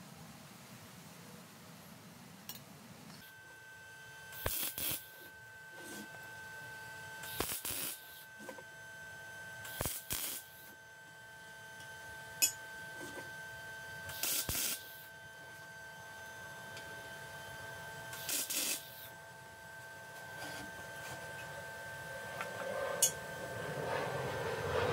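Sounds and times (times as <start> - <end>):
faint steady hum: 0.0 - 24.9
air blow gun hissing bursts: 4.4 - 5.2, 7.2 - 8.2, 9.7 - 10.7, 14.1 - 15.1, 18.1 - 19.1.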